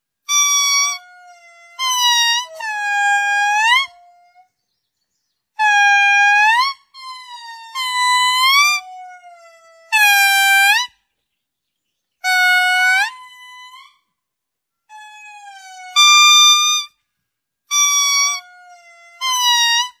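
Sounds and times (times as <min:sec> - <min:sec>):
lemur wailing song: 0:00.3 - 0:04.6, 0:05.6 - 0:11.0, 0:12.2 - 0:14.1, 0:14.9 - 0:17.0, 0:17.7 - 0:20.0.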